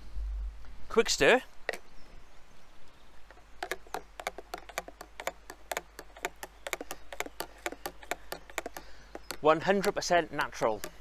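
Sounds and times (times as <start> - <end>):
spoon tapping plastic jug: 3.6 - 11.0.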